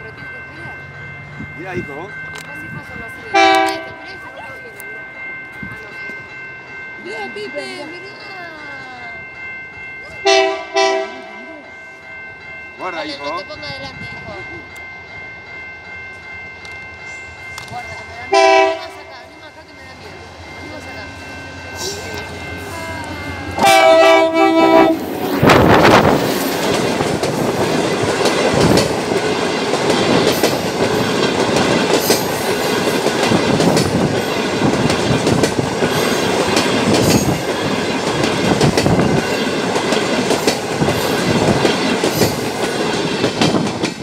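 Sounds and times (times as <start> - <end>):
train coaches rumbling: 0.0 - 44.0
train rushing past: 0.0 - 44.0
train horn blast: 3.3 - 4.1, 10.2 - 11.4, 18.3 - 19.1, 23.5 - 25.7
wheels clacking on rail joints: 21.8 - 44.0.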